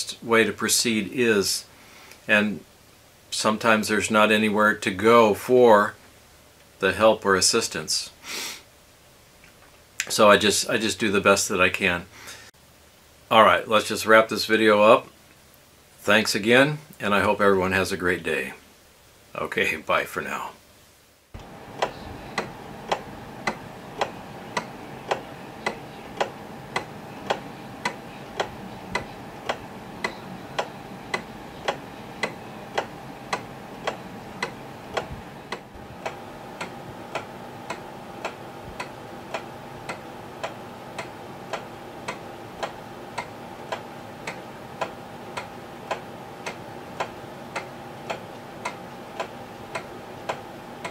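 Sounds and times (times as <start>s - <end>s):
pendulum wall clock ticking: 21.4s - 50.9s.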